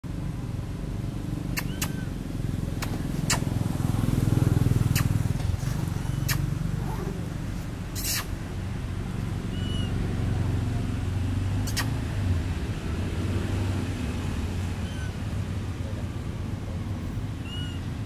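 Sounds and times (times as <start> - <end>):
short sharp clicks: 8.0 - 8.3, 11.6 - 11.9.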